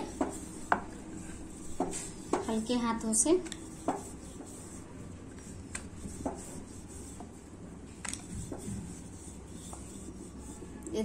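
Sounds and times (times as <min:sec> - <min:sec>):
rolling pin rubbing on dough: 0:00.0 - 0:10.8.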